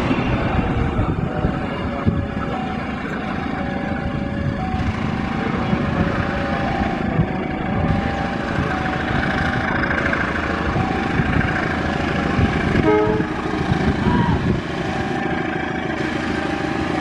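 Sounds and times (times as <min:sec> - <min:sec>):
locomotive engine rumbling: 0:00.0 - 0:17.0
train wheels clicking over rails: 0:04.7 - 0:17.0.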